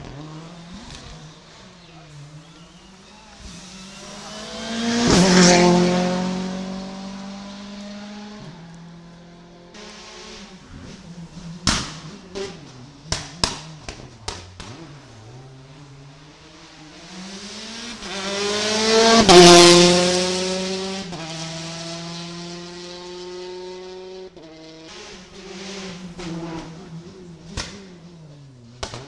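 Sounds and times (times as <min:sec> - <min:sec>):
rally car engine: 0:00.0 - 0:29.0
second car engine rising: 0:00.0 - 0:29.0
exhaust bangs: 0:09.7 - 0:15.6.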